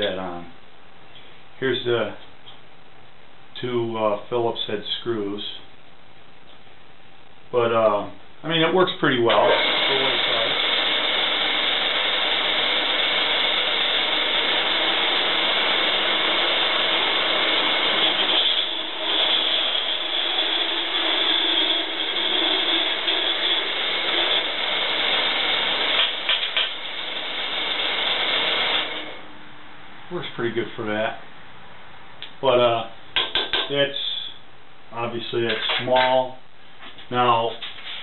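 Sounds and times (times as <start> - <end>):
band saw cutting pipe: 9.3 - 29.2.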